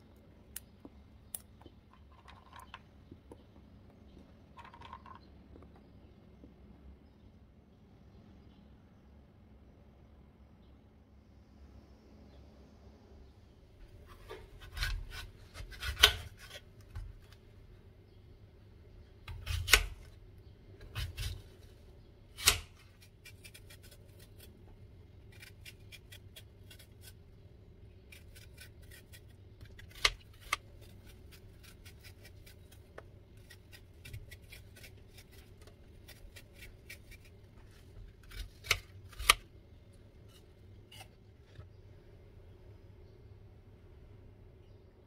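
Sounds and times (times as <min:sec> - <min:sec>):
knife cutting apple: 0:13.9 - 0:17.4, 0:19.2 - 0:20.2, 0:20.8 - 0:39.5, 0:40.2 - 0:41.6
knife peeling apple skin ticks: 0:28.0 - 0:37.4, 0:38.2 - 0:39.4.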